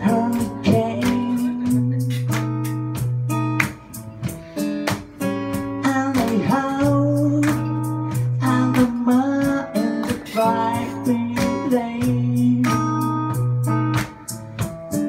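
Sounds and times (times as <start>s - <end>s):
person singing: 0.0s - 3.0s, 5.6s - 13.6s
acoustic guitar strumming: 0.0s - 15.0s.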